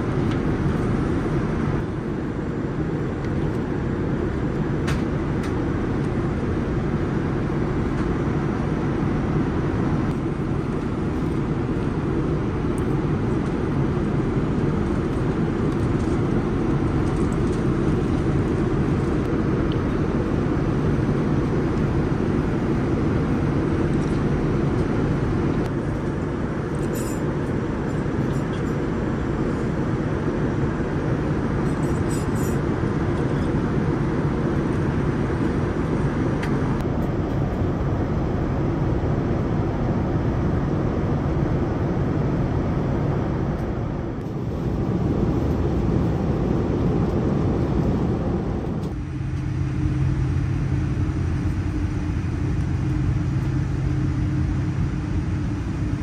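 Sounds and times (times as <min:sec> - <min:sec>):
airliner cabin rumble: 0:00.0 - 0:56.0.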